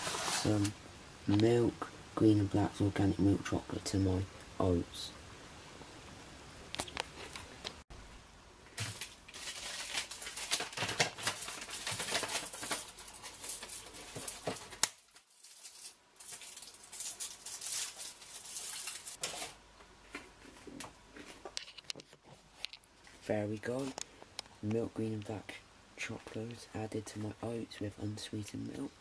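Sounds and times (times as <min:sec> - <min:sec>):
wrapper crinkling and tearing: 0:08.7 - 0:19.6
wrapper rustles and clicks: 0:08.7 - 0:23.2.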